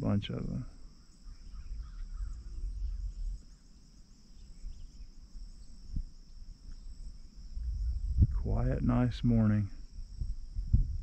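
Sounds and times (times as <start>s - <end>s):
insects chirring: 0.0s - 11.0s
low rumble: 7.5s - 11.0s.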